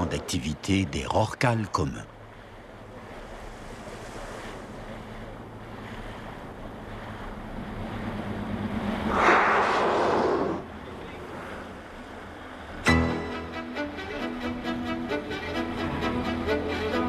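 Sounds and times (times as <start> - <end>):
boat engine hum: 0.0 - 17.0
water wash: 2.8 - 12.9
whale blow exhalation: 9.0 - 10.8.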